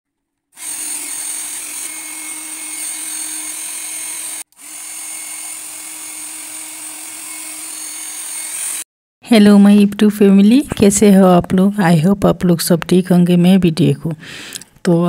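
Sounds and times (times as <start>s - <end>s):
hair dryer running: 0.6s - 8.9s.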